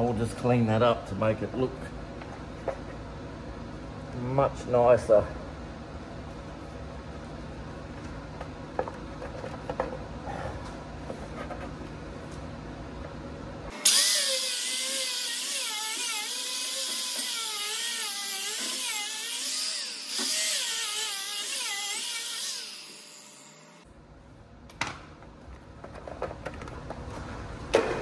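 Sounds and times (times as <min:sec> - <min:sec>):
rotary tool whining: 0:13.7 - 0:23.8
rotary tool winding down: 0:13.7 - 0:23.8.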